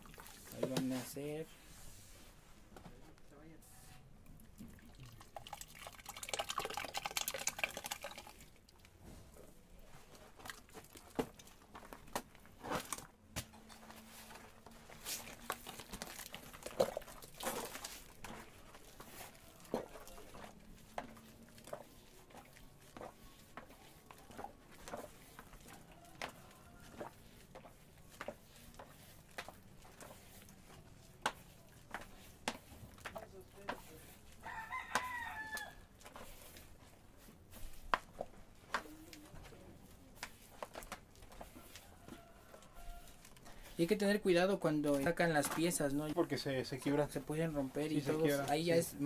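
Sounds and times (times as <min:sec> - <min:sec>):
thick liquid gurgling pour: 0:00.0 - 0:00.6, 0:04.4 - 0:08.9, 0:15.5 - 0:18.2.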